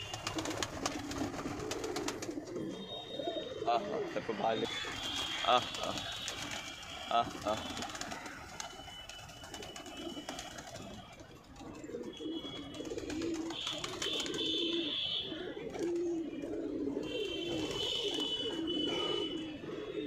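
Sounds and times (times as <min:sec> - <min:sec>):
wing flaps: 0:00.0 - 0:02.4, 0:04.9 - 0:11.2
pigeons cooing: 0:00.0 - 0:20.0.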